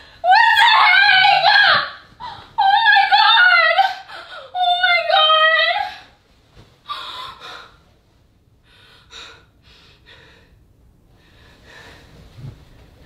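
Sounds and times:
woman breathing softly: 8.6 - 12.8.

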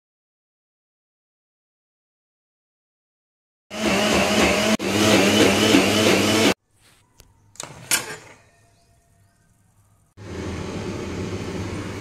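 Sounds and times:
mixer grinder running: 3.7 - 6.6, 10.2 - 12.0.

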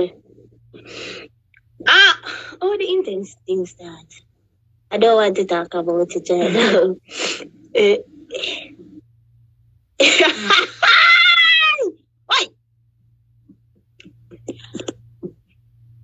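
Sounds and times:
faint low hum: 0.0 - 16.0
woman crying out: 10.5 - 12.5.

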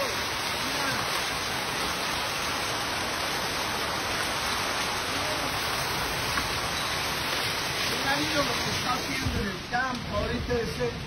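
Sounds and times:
heavy hail falling: 0.0 - 11.0.

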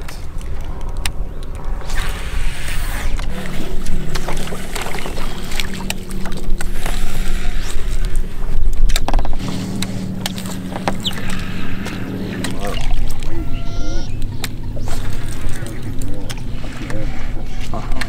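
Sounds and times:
electric motor humming: 3.2 - 8.6, 9.4 - 17.7.

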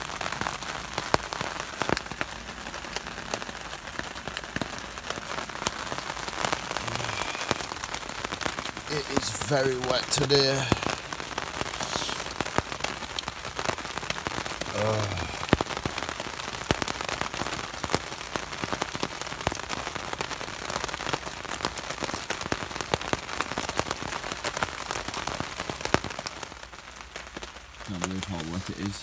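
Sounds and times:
heavy rain on a tarp: 0.0 - 29.0
man's voice murmuring: 6.8 - 7.8, 8.9 - 11.1, 11.8 - 12.3, 14.7 - 15.5, 27.9 - 29.0.

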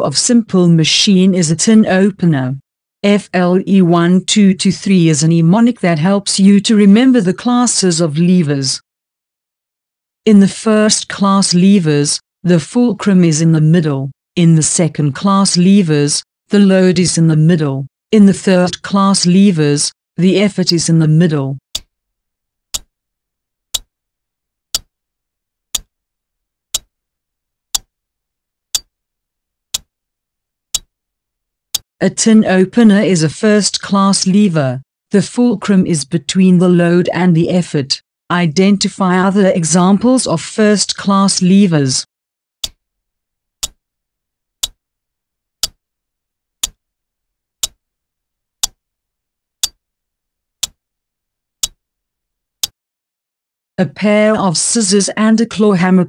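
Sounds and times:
clock ticking: 46.6 - 46.8.

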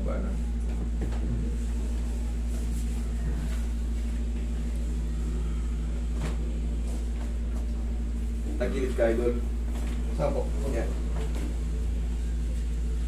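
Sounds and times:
air conditioner humming: 0.0 - 13.0.

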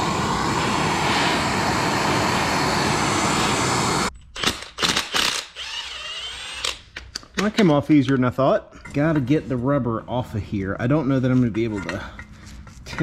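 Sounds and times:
gas torch hissing: 0.0 - 4.1
cordless impact wrench bursts: 4.4 - 7.0.

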